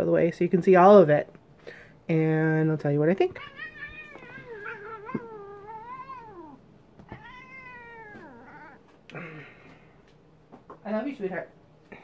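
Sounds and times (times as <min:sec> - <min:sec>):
cat meowing: 0:03.3 - 0:08.9.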